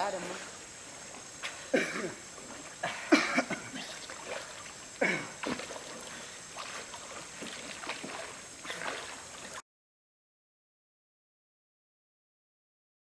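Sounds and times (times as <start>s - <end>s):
river water splashing: 0.0s - 9.6s
steady hiss: 0.0s - 9.6s.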